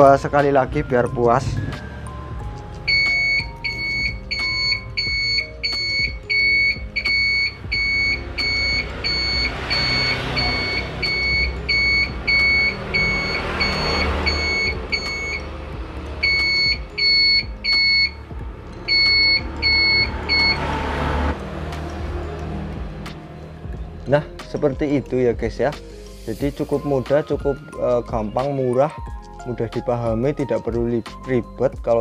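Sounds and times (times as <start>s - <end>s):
turn-signal flasher beeping: 2.9s - 15.5s, 16.2s - 18.2s, 18.9s - 20.6s.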